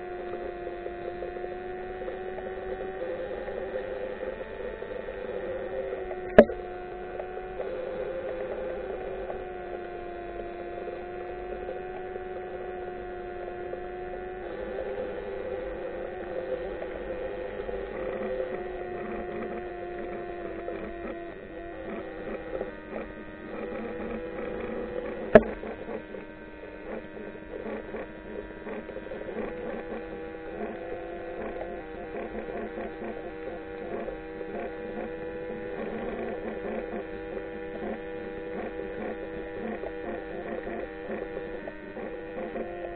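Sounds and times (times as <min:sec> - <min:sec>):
faint crackle of clicks: 0:00.0 - 0:42.9
underwater drone hum: 0:00.0 - 0:42.9
sharp click: 0:25.3 - 0:25.6.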